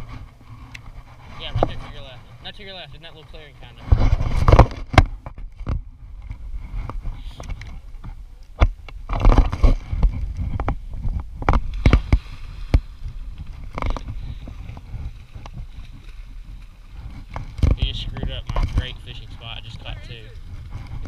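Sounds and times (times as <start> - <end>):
close knocks and rubbing: 0.0 - 2.5, 3.6 - 12.8
water splashing and sloshing: 0.0 - 21.0.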